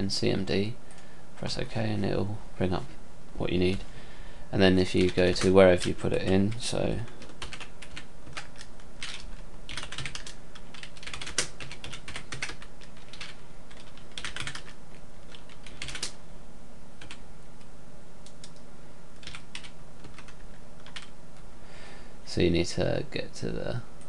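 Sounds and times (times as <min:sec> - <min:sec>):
steady low hum: 0:00.0 - 0:24.0
typing on computer keyboard: 0:07.2 - 0:16.2, 0:17.0 - 0:17.2, 0:19.2 - 0:21.1.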